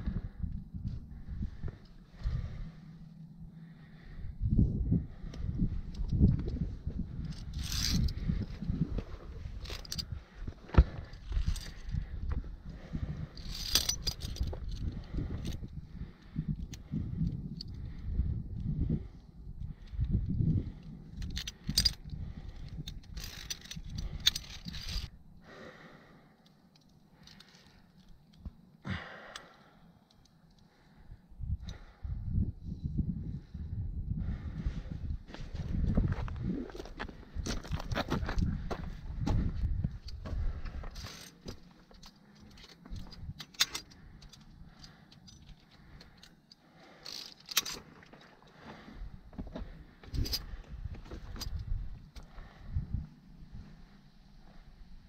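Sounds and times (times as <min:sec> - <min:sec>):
climbing gear clinking: 0:05.0 - 0:25.3, 0:26.4 - 0:30.7, 0:35.4 - 0:53.3.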